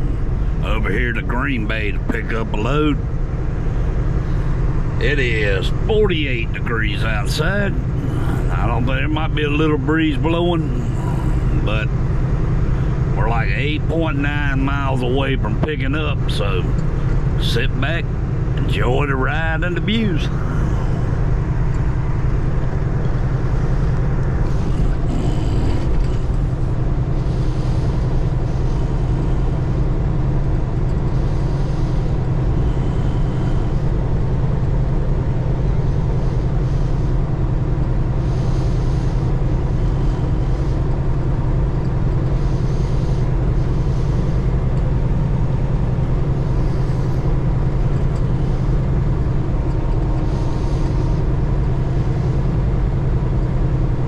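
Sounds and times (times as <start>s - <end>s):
truck engine and road drone: 0.0s - 54.0s.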